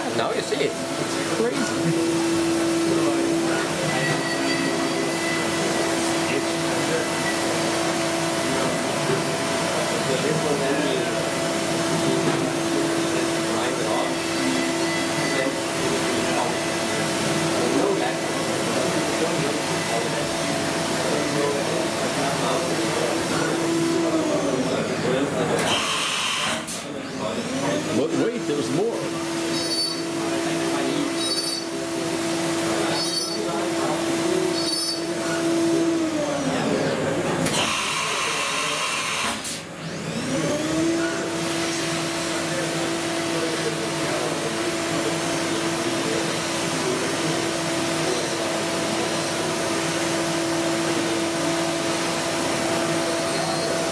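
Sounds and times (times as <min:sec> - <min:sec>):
milling machine whine: 0:00.0 - 0:53.9
cutter squealing: 0:03.7 - 0:07.5, 0:13.5 - 0:16.8, 0:29.4 - 0:30.2, 0:30.9 - 0:31.8, 0:32.8 - 0:33.7, 0:34.4 - 0:35.4, 0:52.9 - 0:53.9.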